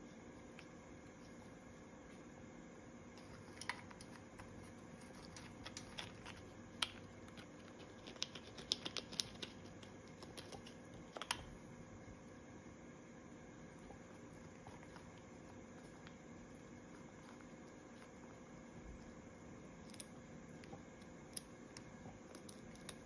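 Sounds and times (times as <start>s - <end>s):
parrot beak cracking nuts: 5.3s - 11.5s.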